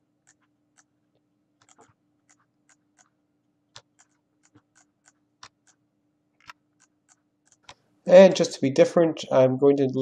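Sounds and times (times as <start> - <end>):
faint steady hum: 0.0 - 10.0
computer mouse and keyboard clicks: 0.2 - 0.9, 1.6 - 3.1, 3.7 - 5.8, 6.4 - 7.9.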